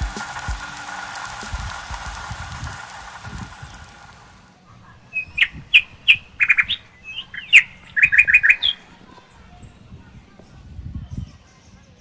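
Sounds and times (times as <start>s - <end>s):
songbird singing: 5.0s - 9.9s.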